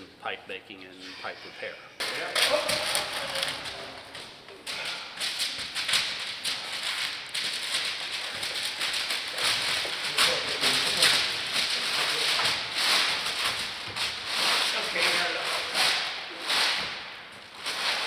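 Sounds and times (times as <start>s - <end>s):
paper rustling and crinkling: 2.3s - 18.0s.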